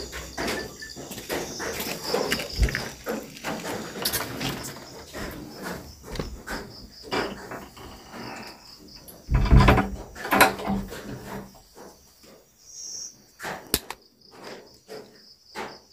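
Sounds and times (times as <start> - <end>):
close rustling and knocks: 0.0 - 12.0
crickets chirping: 0.0 - 15.9
sharp click: 13.7 - 14.0.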